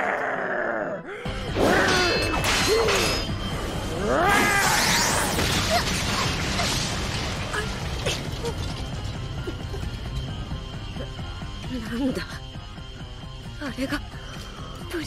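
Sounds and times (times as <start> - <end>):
monster shrieking: 4.0 - 5.4.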